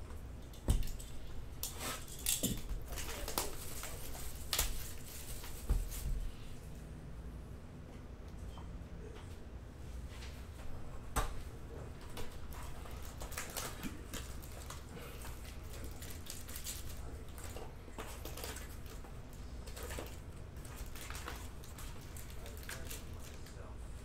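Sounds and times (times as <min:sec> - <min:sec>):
trading cards handled and rustling: 0:00.8 - 0:06.4, 0:12.0 - 0:23.7.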